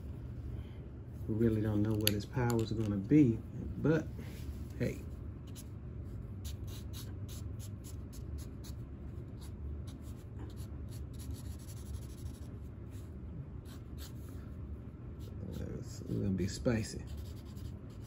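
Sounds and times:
steady low hum: 0:00.0 - 0:18.0
marker scratching on paper: 0:06.4 - 0:14.3, 0:15.2 - 0:15.6, 0:17.0 - 0:18.0.

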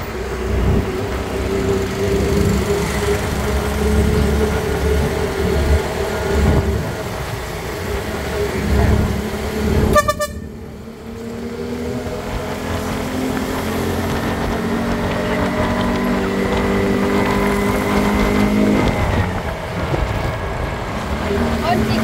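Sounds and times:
road noise: 0:00.0 - 0:22.0
vehicle engine drone: 0:00.0 - 0:22.0
horn beep: 0:09.9 - 0:10.6.

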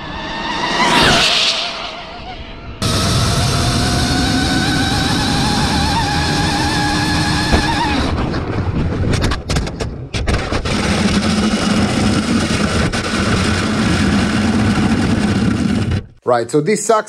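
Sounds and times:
electric motor whine: 0:02.8 - 0:08.2
rough rushing and rattling: 0:04.5 - 0:16.2
sharp knocks: 0:07.5 - 0:08.0.

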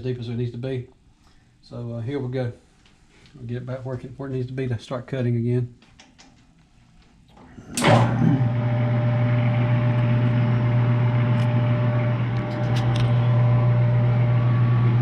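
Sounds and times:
lathe motor humming: 0:07.8 - 0:15.0.

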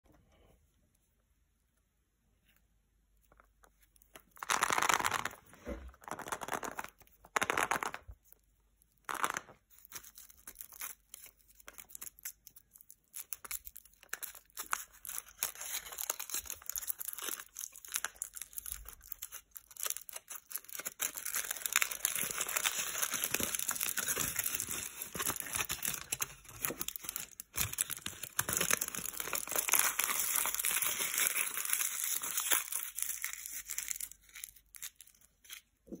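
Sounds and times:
foil wrapper tearing and crinkling: 0:09.1 - 0:35.7.

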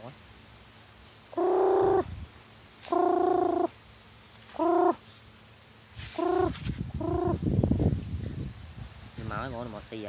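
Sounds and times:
person calling chickens: 0:01.3 - 0:02.1, 0:02.8 - 0:03.7, 0:04.5 - 0:05.0, 0:06.0 - 0:07.4.

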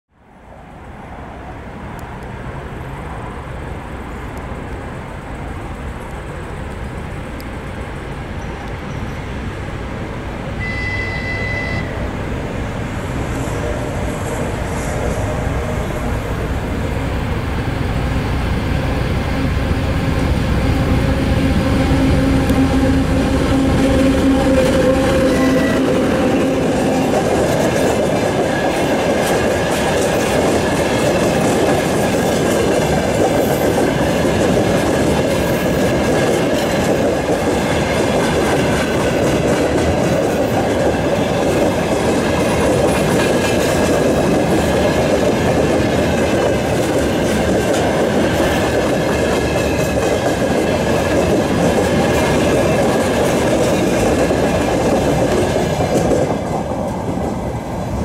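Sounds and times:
diesel locomotive engine: 0:00.2 - 0:58.0
high-pitched train horn: 0:10.6 - 0:12.2, 0:19.4 - 0:27.3.

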